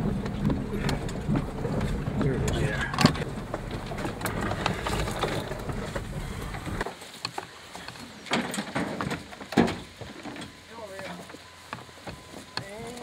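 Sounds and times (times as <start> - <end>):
knocks and rattles: 0.0 - 6.8, 8.0 - 10.6
vehicle rumble: 0.0 - 13.0.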